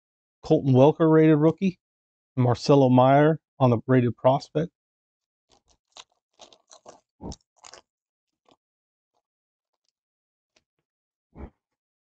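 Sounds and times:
card wrapper crinkling and tearing: 5.5 - 8.6.

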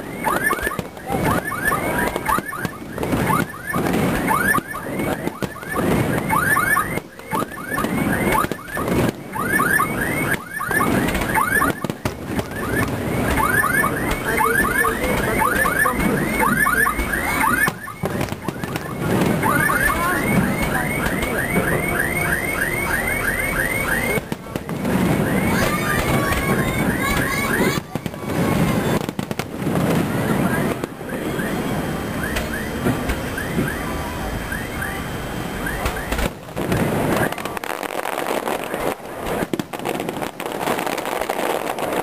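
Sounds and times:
firework shells bursting: 0.2 - 31.0.

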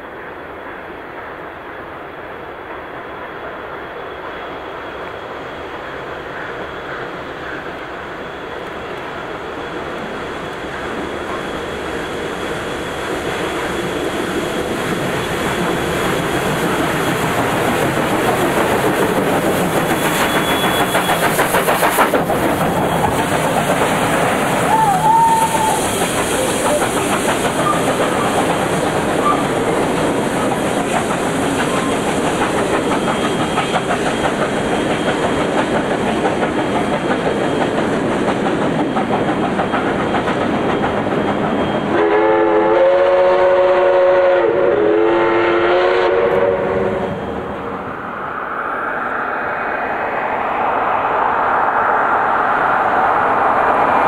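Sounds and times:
steam locomotive running: 0.0 - 54.0
steam whistle blast: 24.6 - 26.9, 41.9 - 47.2.

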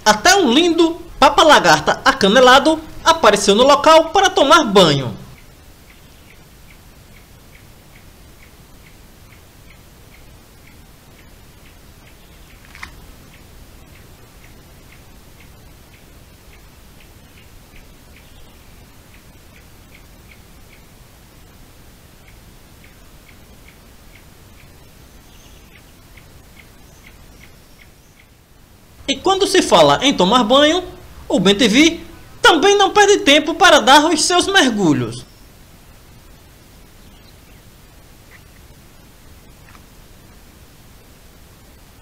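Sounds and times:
low steady hiss: 0.0 - 42.0
sharp click: 12.5 - 13.4.

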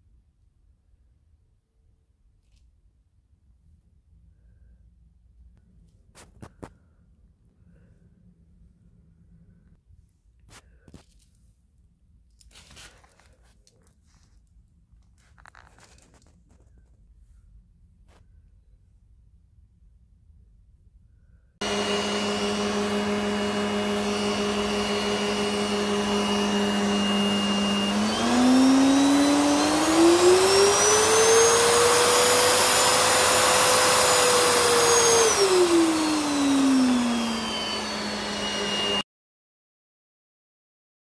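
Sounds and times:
vacuum cleaner motor whining: 21.6 - 39.0.

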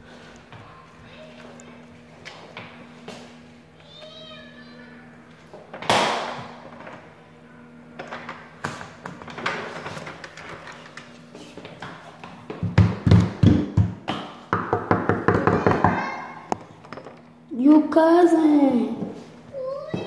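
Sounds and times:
heavy thumps on a door: 12.5 - 16.0
knocking on a door: 12.5 - 16.1.

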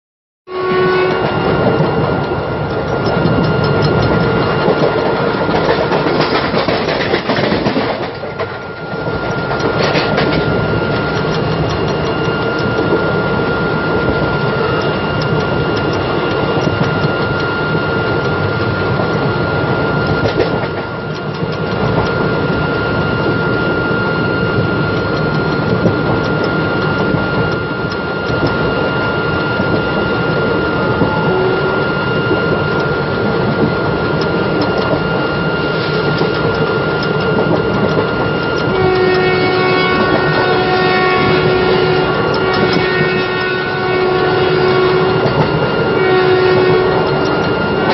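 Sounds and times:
deep horn blasts: 0.5 - 1.6, 30.9 - 32.1, 38.6 - 47.9
high locomotive horn: 0.5 - 1.9, 30.8 - 32.6, 38.6 - 47.9
train wheels rumbling on rails: 0.5 - 47.9.

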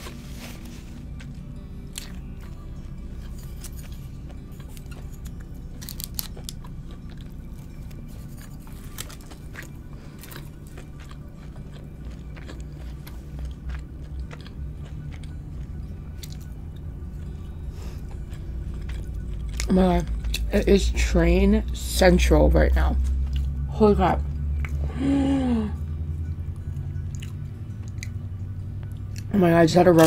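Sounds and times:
crunchy chewing: 0.1 - 20.8, 26.5 - 28.2.

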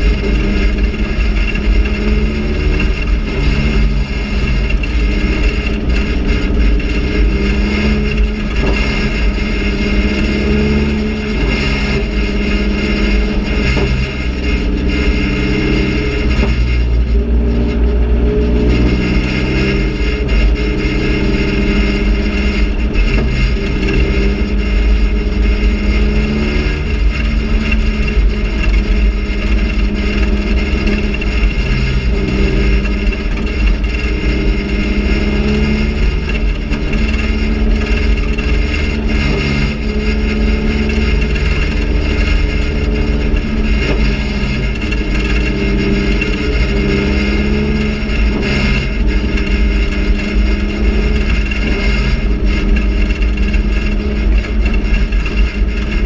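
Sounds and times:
race car engine from inside cabin: 0.0 - 56.0.

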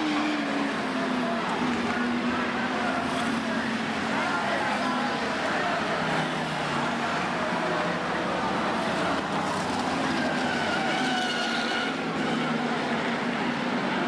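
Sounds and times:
racing car engines: 0.0 - 14.0.

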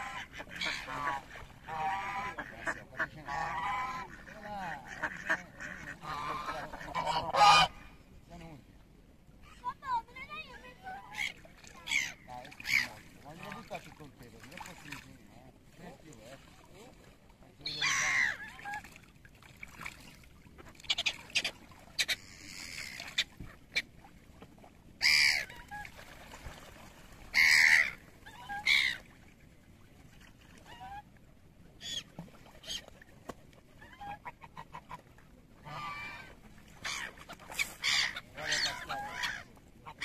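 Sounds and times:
geese honking: 0.0 - 7.9, 35.6 - 40.0.

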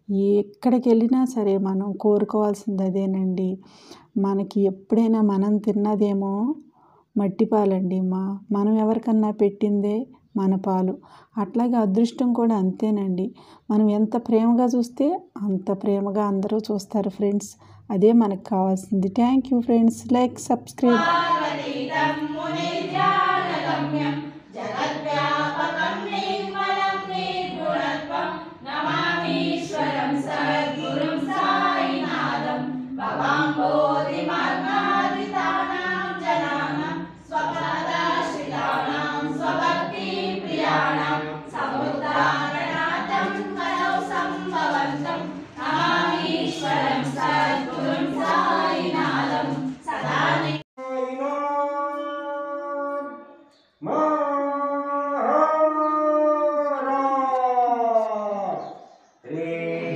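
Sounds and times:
voices singing unaccompanied: 20.7 - 59.9.

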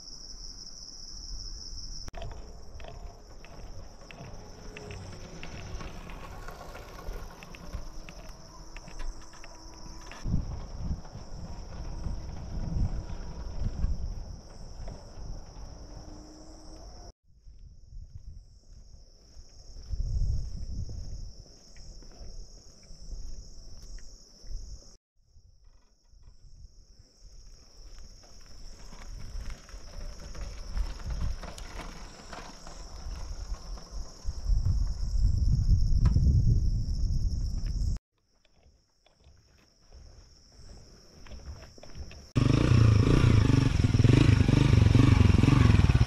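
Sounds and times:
low rumbling on microphone: 10.3 - 16.1.

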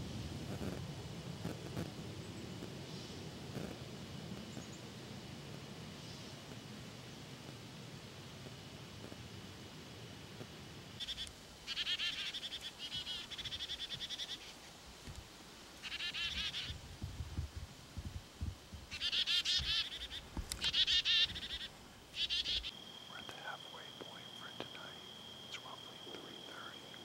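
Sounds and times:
chickadee calling: 11.0 - 14.6, 15.8 - 16.8, 18.9 - 27.0.

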